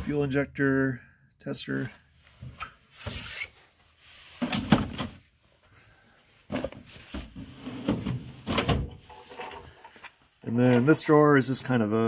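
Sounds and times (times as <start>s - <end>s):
tool box drawers shutting and opening: 6.5s - 9.6s.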